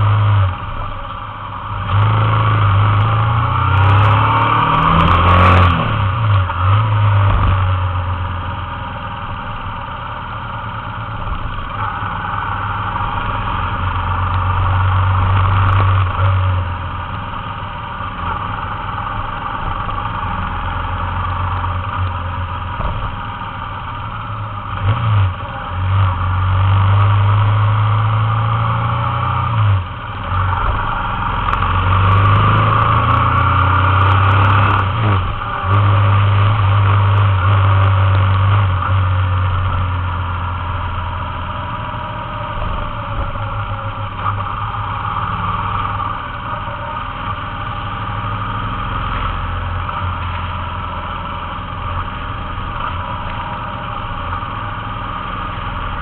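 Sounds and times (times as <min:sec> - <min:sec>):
motorcycle engine changing gears: 0:00.0 - 0:56.0.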